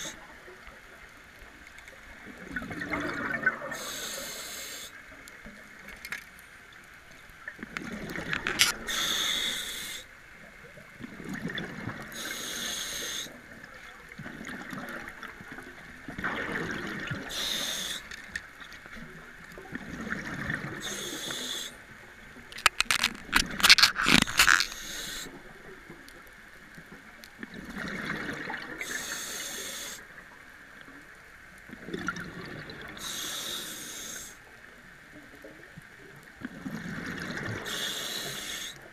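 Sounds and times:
exhaled bubbles gurgling: 0:02.1 - 0:04.4, 0:07.5 - 0:10.0, 0:10.8 - 0:18.0, 0:19.0 - 0:21.7, 0:27.4 - 0:29.9, 0:31.7 - 0:33.6, 0:35.7 - 0:38.9
regulator hissing inhale: 0:03.7 - 0:05.0, 0:08.8 - 0:10.1, 0:12.1 - 0:13.4, 0:17.3 - 0:18.1, 0:20.8 - 0:21.8, 0:24.6 - 0:25.3, 0:28.8 - 0:30.1, 0:33.0 - 0:34.5, 0:37.6 - 0:38.8
sharp clicks and rattles: 0:22.5 - 0:24.8.

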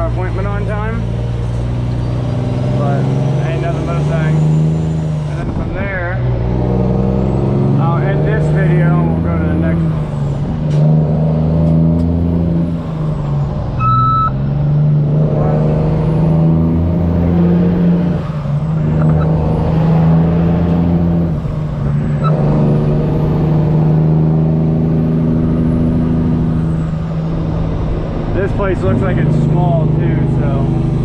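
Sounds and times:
diesel truck engine running: 0:00.0 - 0:31.0
short beep: 0:13.8 - 0:14.4.

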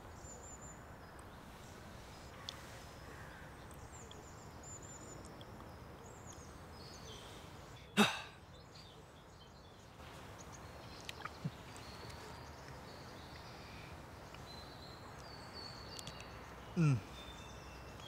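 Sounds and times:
man groaning: 0:16.8 - 0:17.0.

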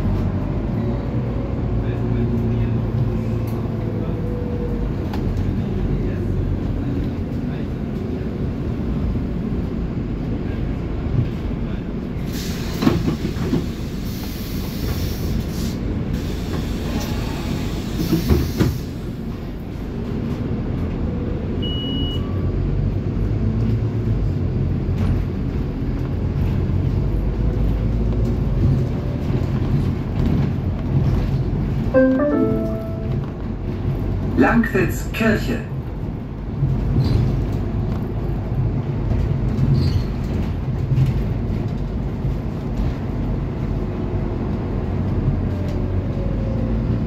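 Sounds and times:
bus engine rumble: 0:00.0 - 0:47.0
road noise: 0:00.0 - 0:47.0
short high beep: 0:32.0 - 0:33.2.

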